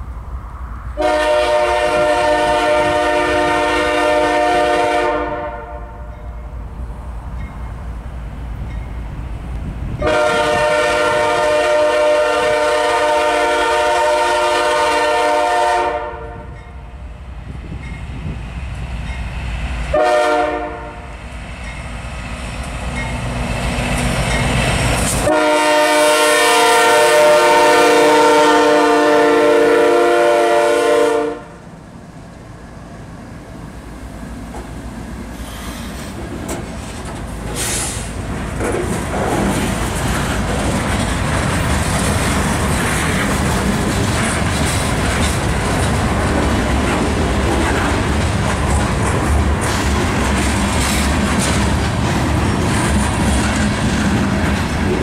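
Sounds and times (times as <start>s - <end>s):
train wheels rumbling on rails: 0.0s - 55.0s
locomotive air horn blasts: 1.0s - 6.2s, 10.0s - 16.6s, 19.9s - 21.1s, 25.2s - 31.6s.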